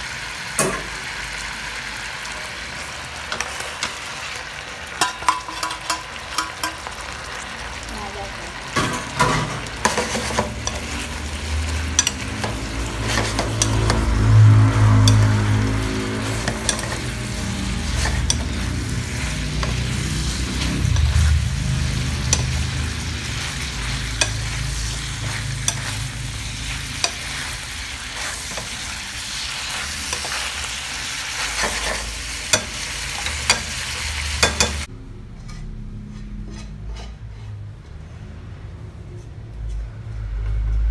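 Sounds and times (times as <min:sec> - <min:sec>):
shrimp sizzling in frying pan: 0:00.0 - 0:34.9
utensil scraping a pan: 0:09.0 - 0:38.3.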